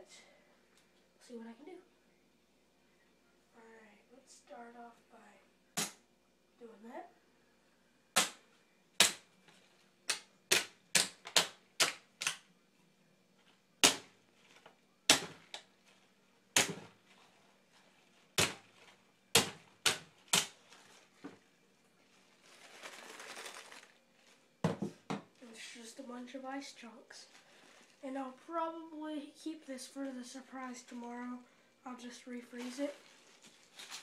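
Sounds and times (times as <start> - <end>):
plastic bottle rustling: 16.7 - 25.8, 27.2 - 28.4, 32.4 - 34.0.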